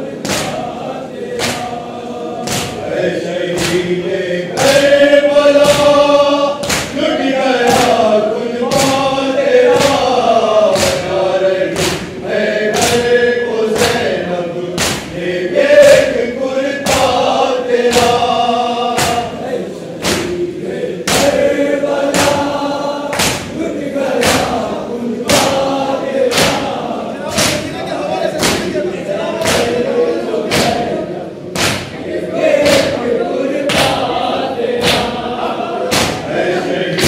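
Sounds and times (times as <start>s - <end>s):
men chanting a lament: 0.0s - 37.0s
hand slaps on chest: 0.2s - 0.7s, 1.4s - 1.7s, 2.4s - 2.9s, 3.5s - 3.9s, 6.6s - 7.0s, 8.7s - 9.1s, 9.7s - 10.1s, 10.7s - 13.1s, 13.8s - 14.2s, 14.8s - 15.2s, 17.9s - 18.3s, 19.0s - 19.4s, 20.0s - 20.4s, 21.1s - 21.4s, 23.1s - 23.6s, 24.2s - 24.6s, 26.3s - 26.7s, 29.4s - 29.8s, 31.6s - 32.0s, 33.7s - 34.0s, 34.8s - 35.2s, 35.9s - 36.3s.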